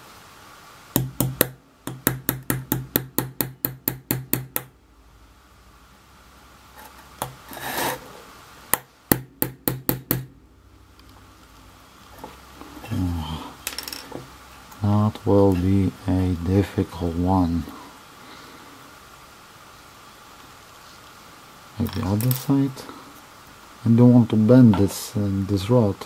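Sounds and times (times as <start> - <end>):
small hammer tapping metal rod: 1.0 - 4.7
rubbing noise: 6.8 - 8.2.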